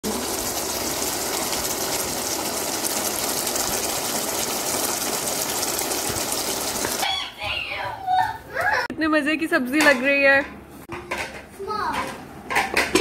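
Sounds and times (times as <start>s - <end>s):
curry sizzling and bubbling: 0.0s - 7.1s.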